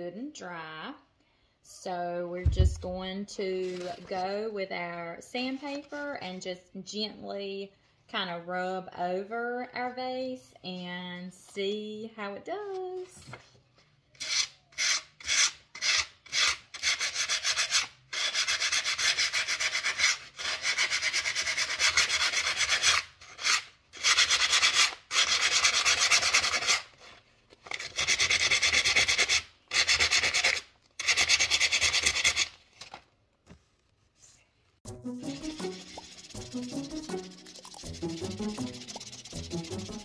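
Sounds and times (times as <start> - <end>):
sandpaper rubbing on ceramic: 14.2 - 27.1, 27.7 - 32.6, 35.2 - 40.0.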